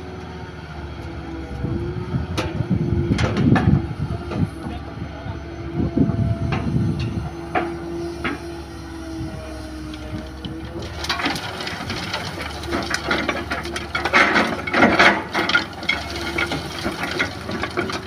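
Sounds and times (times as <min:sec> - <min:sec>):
excavator engine and hydraulics whine: 0:00.0 - 0:18.0
steel bucket clanking on stones: 0:10.8 - 0:18.0.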